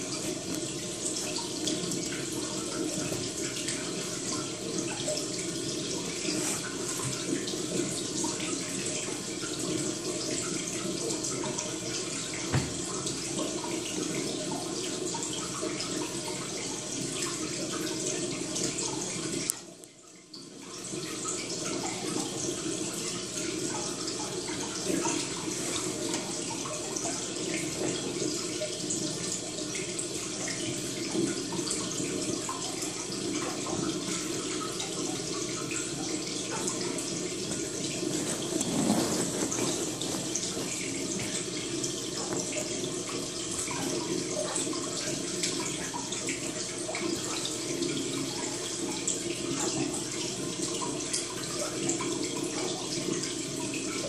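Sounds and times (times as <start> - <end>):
water trickling: 0.0 - 54.0.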